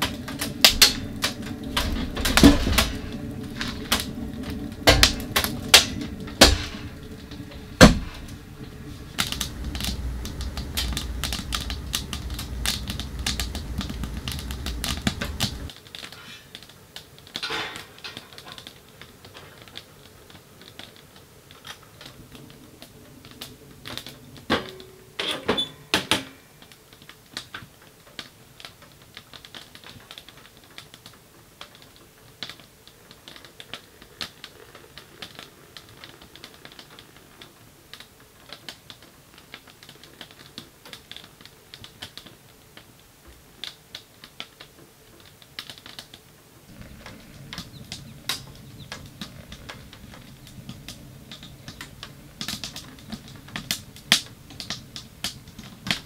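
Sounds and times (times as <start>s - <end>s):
wood fire crackling: 0.0s - 56.0s
cookware clattering on stovetop: 17.4s - 18.7s.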